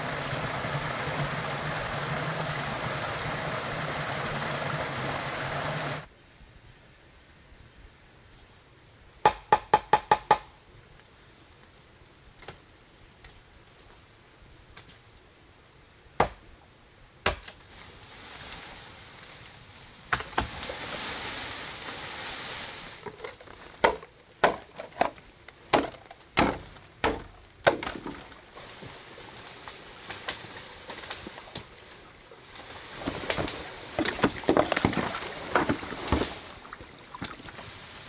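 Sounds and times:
rustling hiss: 0.0 - 9.0, 17.6 - 23.7, 28.2 - 38.0
machete chopping bamboo: 16.2 - 16.4, 17.2 - 17.6, 23.8 - 25.1, 25.7 - 28.2.

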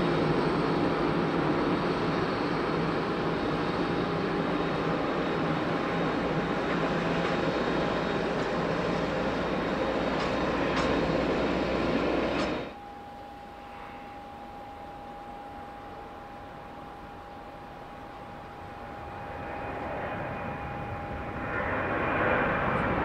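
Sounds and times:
jet engines rumbling: 0.0 - 23.0
faint hiss with thin whine: 12.8 - 17.2.

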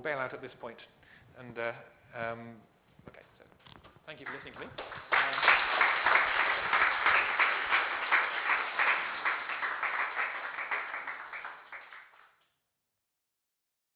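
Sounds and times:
audience applauding: 4.1 - 12.4.

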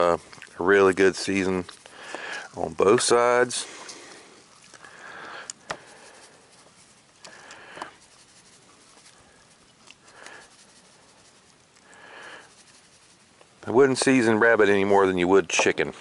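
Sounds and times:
seasoning shaker shaking: 0.0 - 3.4, 5.7 - 14.4.

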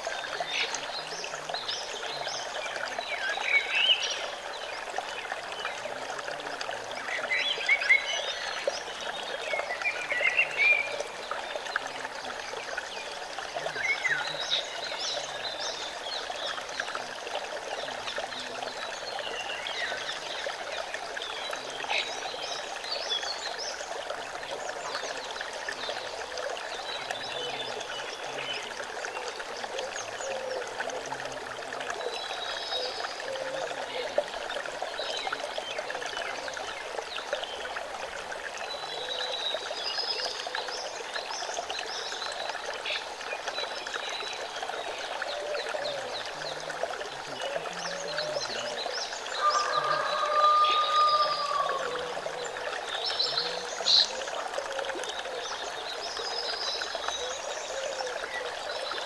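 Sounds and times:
stream splashing over rocks: 0.0 - 59.0.

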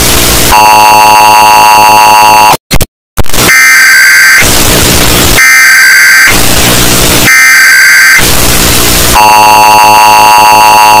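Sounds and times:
harsh noise: 0.0 - 11.0
two-tone alarm signal: 0.5 - 2.7, 3.5 - 4.5, 5.3 - 6.5, 7.2 - 8.4, 9.1 - 11.0
screeching data-burst tones: 3.4 - 11.0.

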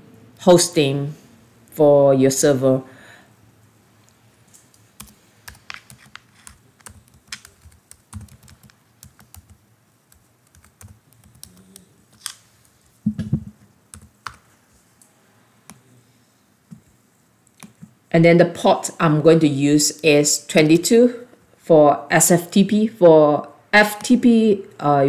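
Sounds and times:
keyboard typing: 4.6 - 12.4, 13.2 - 14.4
loud thump: 13.0 - 13.6.

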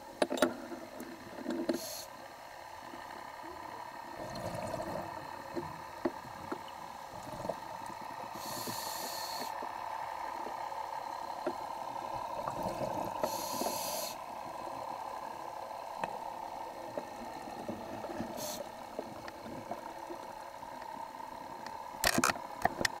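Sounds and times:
steady hum: 0.0 - 23.0
diver breathing through regulator: 8.3 - 9.6, 12.8 - 14.2
small clicks: 21.6 - 23.0.

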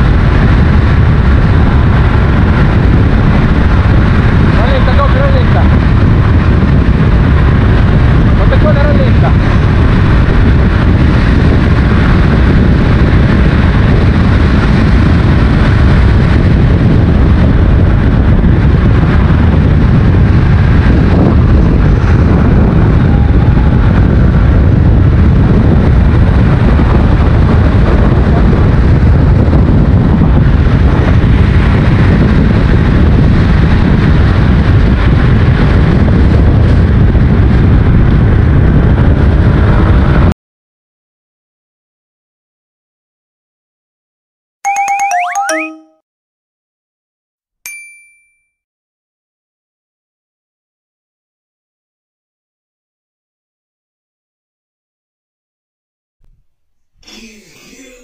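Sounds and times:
vehicle and road noise: 0.0 - 40.3
wind buffeting microphone: 0.0 - 40.4.

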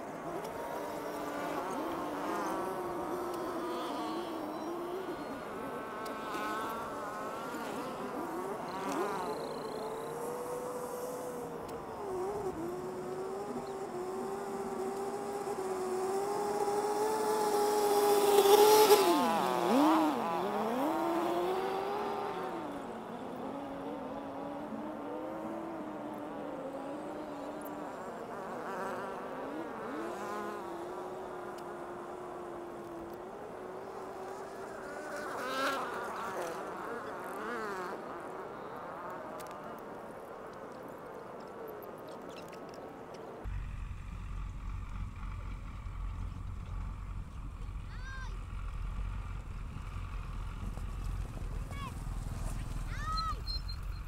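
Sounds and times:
small engine buzzing: 0.0 - 40.3.

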